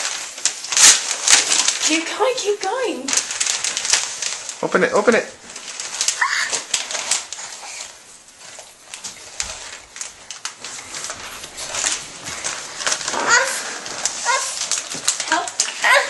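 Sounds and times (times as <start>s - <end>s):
wrapping paper crinkling and tearing: 0.0s - 16.0s
high-pitched vocal cries: 6.1s - 6.7s, 13.1s - 14.6s.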